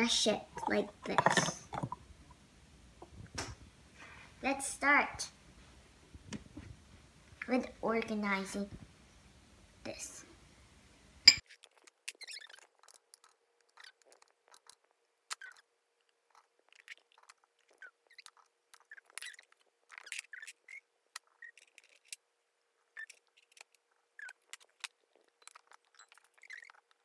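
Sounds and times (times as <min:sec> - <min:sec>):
plastic cups handled: 0:00.4 - 0:02.0
water beads dropping into plastic tubes: 0:00.6 - 0:02.0.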